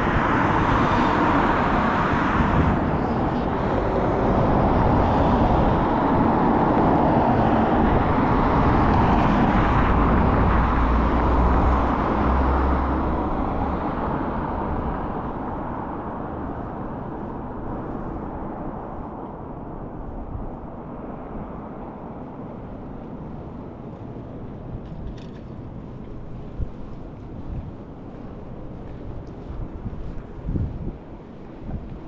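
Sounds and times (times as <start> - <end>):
vehicle passing by: 0.0 - 16.6.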